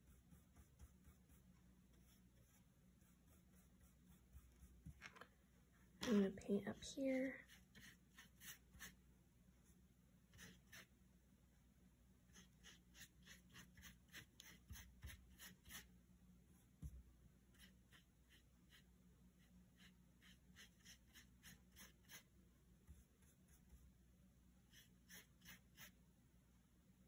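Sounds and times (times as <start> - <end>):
paintbrush scrubbing on paper: 0.0 - 5.0, 6.8 - 9.0, 9.6 - 10.9, 12.2 - 15.9, 16.5 - 23.9, 24.7 - 26.0.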